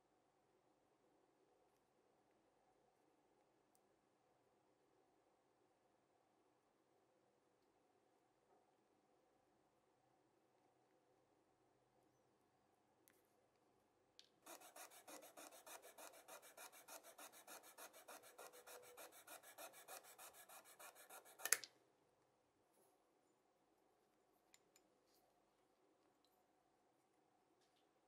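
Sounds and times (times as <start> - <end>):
saw rasping through metal: 14.5 - 21.6.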